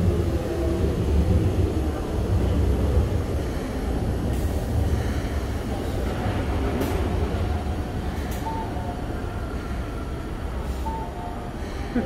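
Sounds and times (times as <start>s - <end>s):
bus diesel engine rumbling: 0.0s - 12.0s.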